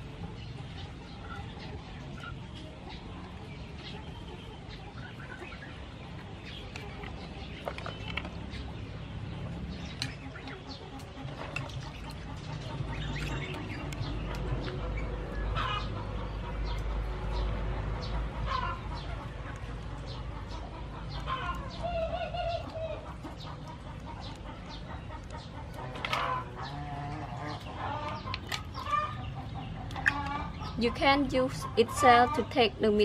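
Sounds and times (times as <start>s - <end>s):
chickens clucking: 0.0s - 33.0s.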